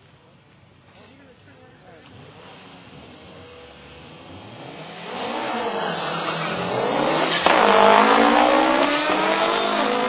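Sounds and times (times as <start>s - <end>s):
engine accelerating hard: 2.0s - 10.0s
sharp crack: 7.2s - 8.3s.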